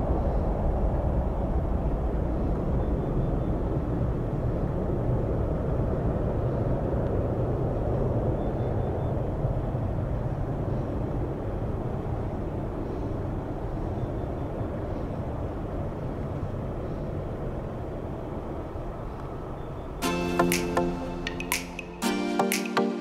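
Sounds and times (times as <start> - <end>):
jet airliner engine rumble: 0.0 - 20.0.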